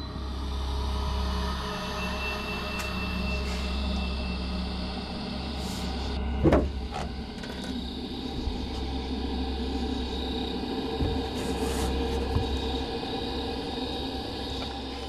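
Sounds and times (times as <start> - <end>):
steady low hum: 3.2 - 15.0.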